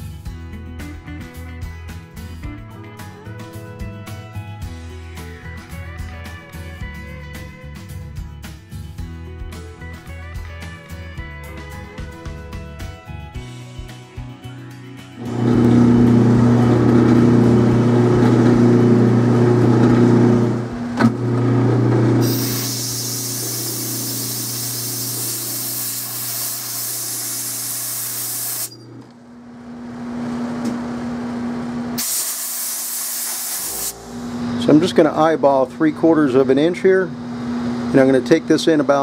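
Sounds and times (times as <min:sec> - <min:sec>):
metal lathe humming: 0:15.2 - 0:29.1
loud hiss: 0:22.2 - 0:28.7, 0:32.0 - 0:34.4.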